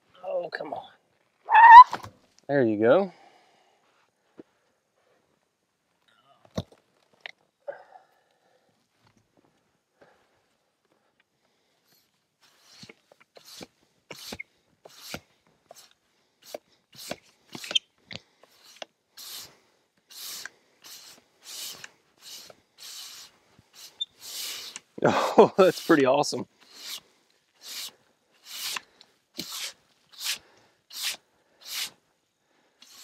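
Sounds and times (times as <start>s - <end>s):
broom sweeping sawdust: 18.5s - 24.9s, 25.5s - 27.0s, 27.6s - 28.8s, 29.4s - 32.0s.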